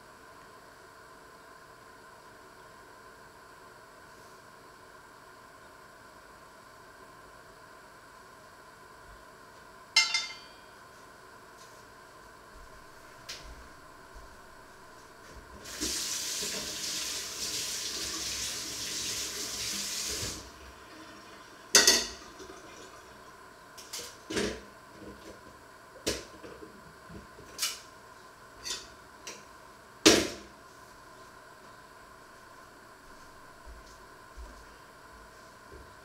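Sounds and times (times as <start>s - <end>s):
sharp knocks and clinks: 10.0s - 10.8s
kitchen tap running: 15.6s - 21.3s.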